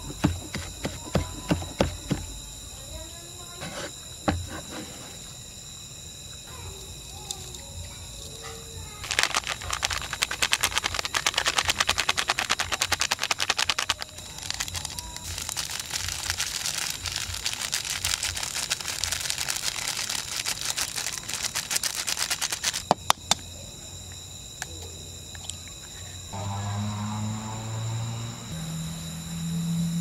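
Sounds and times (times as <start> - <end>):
seasonings shaken into bowl: 9.0 - 22.8.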